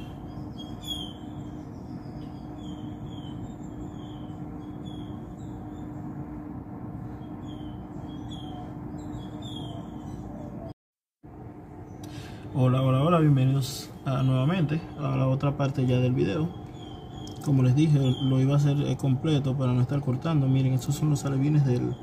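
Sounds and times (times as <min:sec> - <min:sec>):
low background hum: 0:00.0 - 0:22.0.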